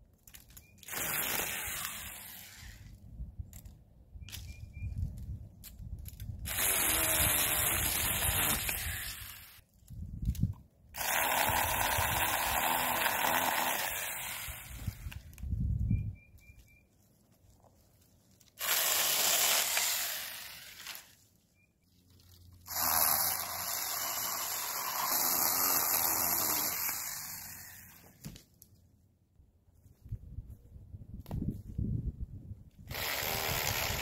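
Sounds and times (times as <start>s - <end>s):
mini chainsaw cutting branches: 0.8s - 3.0s, 6.4s - 9.6s, 10.9s - 15.4s, 18.5s - 21.2s, 22.6s - 28.4s, 32.9s - 34.0s.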